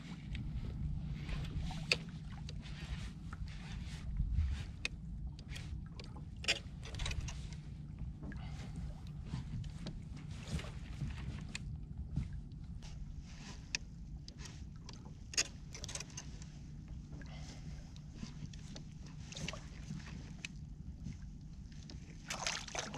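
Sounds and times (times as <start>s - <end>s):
steady low rumble: 0.0s - 22.9s
water splashing against kayak hull: 0.1s - 22.9s
small knocks and clicks from gear: 4.4s - 8.4s, 9.3s - 17.3s.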